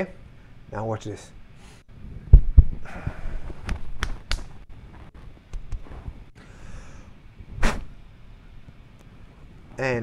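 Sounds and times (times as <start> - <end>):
hands thumping microphone: 2.3 - 6.2.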